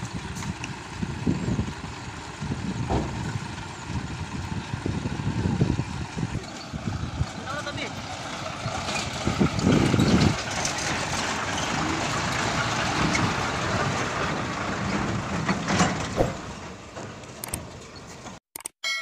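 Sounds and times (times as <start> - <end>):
diesel truck engine driving past: 0.0 - 18.1.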